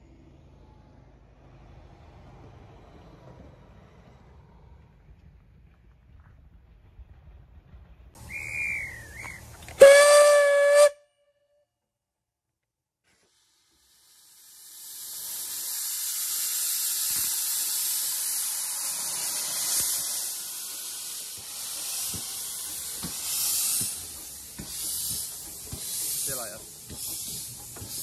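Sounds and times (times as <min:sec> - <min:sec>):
steam hissing from locomotive: 0:08.2 - 0:10.9, 0:13.1 - 0:28.0.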